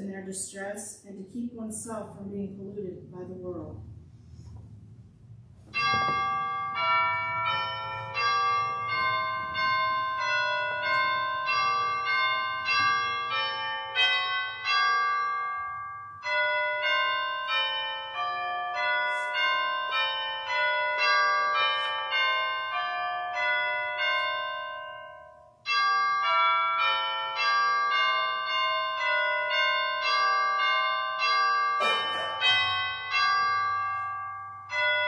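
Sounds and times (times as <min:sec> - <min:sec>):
chimes playing slow melody: 0:05.7 - 0:35.0.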